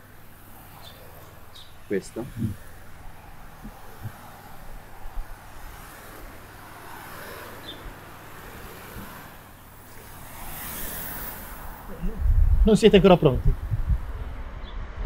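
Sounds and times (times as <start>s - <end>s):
distant road traffic: 0.0s - 15.0s.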